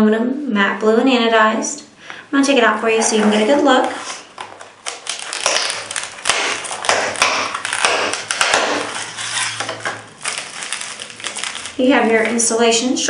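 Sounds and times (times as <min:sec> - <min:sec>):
plastic blister pack crinkling: 0:03.2 - 0:12.7.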